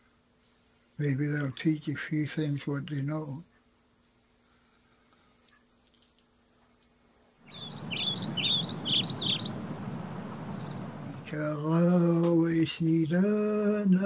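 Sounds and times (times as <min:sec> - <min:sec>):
rushing outdoor ambience: 0:07.4 - 0:11.9
bird chirping: 0:07.5 - 0:11.6
man singing: 0:11.1 - 0:14.0.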